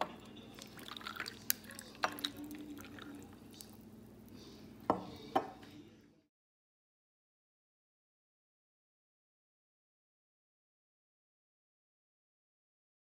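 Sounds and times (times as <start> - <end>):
ice cracking and clinking in glass: 0.0 - 3.8
liquid trickling: 0.2 - 4.0.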